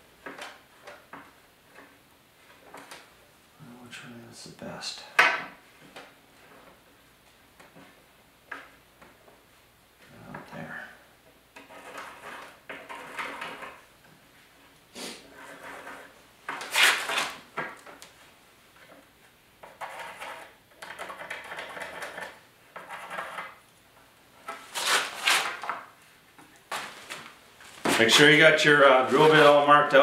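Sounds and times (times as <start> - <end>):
pencil scratching on board: 11.6 - 13.8, 15.3 - 16.2, 19.7 - 23.6.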